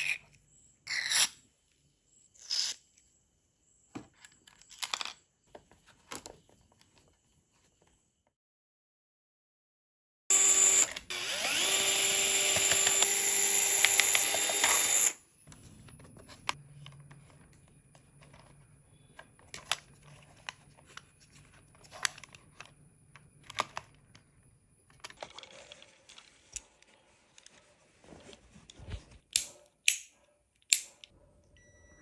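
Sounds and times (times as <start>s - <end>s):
electric motor whirring: 10.3s - 15.2s
faint clicks and handling noises: 15.5s - 31.2s.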